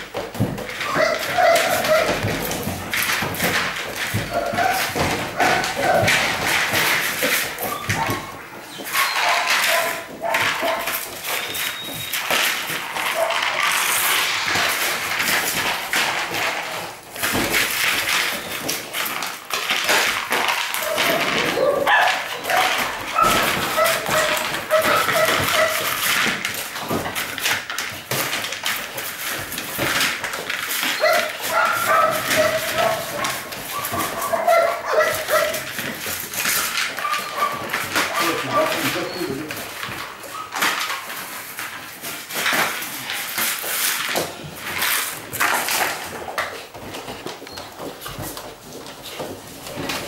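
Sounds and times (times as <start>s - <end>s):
bowl scraping on tiles: 0.8s - 26.8s
puppy whining and yelping: 7.6s - 10.0s.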